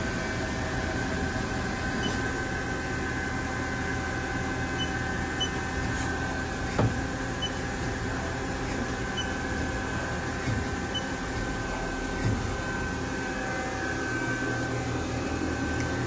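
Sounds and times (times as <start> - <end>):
machine hum: 0.0 - 16.0
machine clunk: 10.4 - 12.7.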